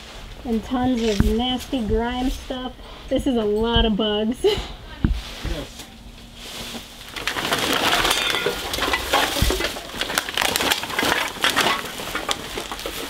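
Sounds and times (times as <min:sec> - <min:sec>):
trash clicks and knocks: 0:00.4 - 0:02.6, 0:03.4 - 0:13.0
plastic bags crinkling: 0:06.5 - 0:13.0.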